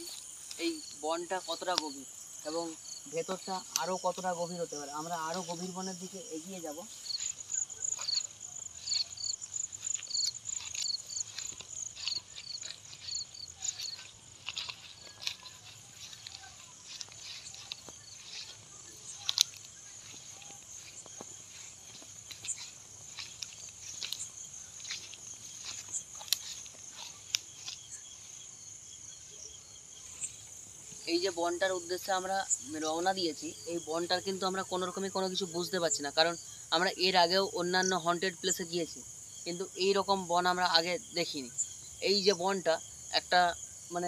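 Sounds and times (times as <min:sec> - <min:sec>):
footsteps swishing through grass: 0:00.0 - 0:28.9
crickets trilling: 0:00.0 - 0:44.0
insect chirping in pulses: 0:00.0 - 0:44.0
sharp snaps and clicks: 0:03.6 - 0:03.9, 0:19.1 - 0:20.2.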